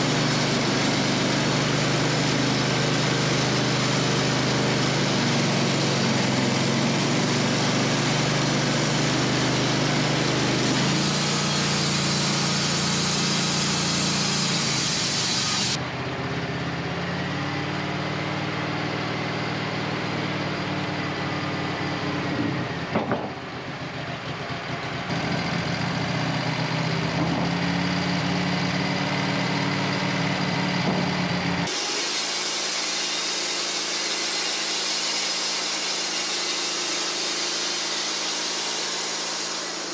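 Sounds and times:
band blade sawing log: 0.0 - 15.8, 29.0 - 39.9
band sawmill engine drone: 0.0 - 39.9.

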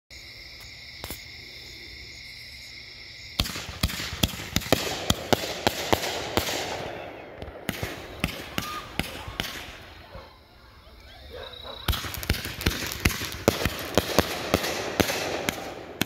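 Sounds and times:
crackling hiss: 0.1 - 16.0
firework shots: 3.4 - 10.1, 11.7 - 16.0.

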